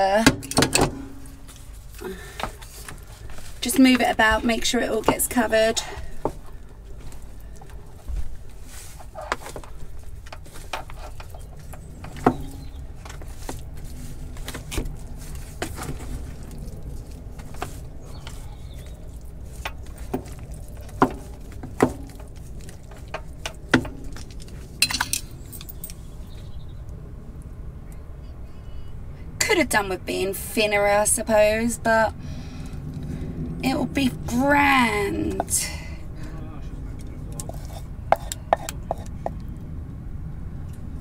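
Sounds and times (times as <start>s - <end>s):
wooden spoon stirring in foil tray: 1.3s - 24.8s, 37.4s - 39.1s.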